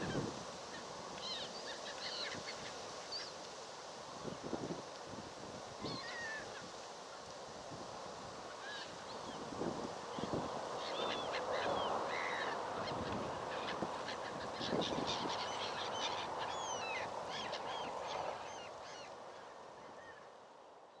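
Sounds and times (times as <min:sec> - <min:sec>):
flock of birds calling: 0:00.0 - 0:03.6, 0:05.8 - 0:06.8, 0:08.5 - 0:20.3.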